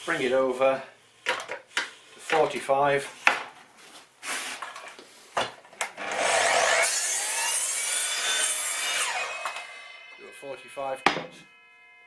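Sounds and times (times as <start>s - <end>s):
mitre saw whining: 6.0s - 12.0s.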